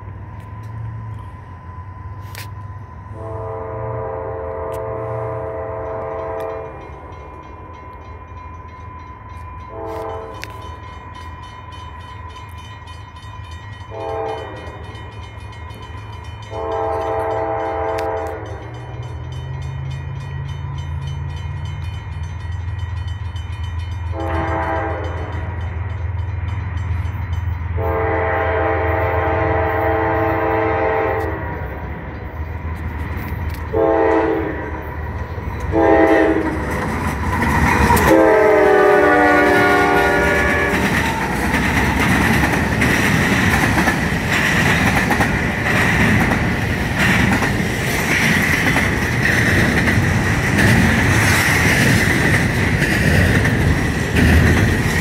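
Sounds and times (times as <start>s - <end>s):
diesel locomotive rumble: 0.0s - 55.0s
train horn blasts: 2.1s - 7.1s, 9.5s - 10.7s, 13.8s - 15.1s, 16.4s - 19.6s, 24.1s - 25.7s, 27.7s - 31.8s, 33.6s - 34.9s, 35.6s - 36.7s, 37.6s - 41.4s.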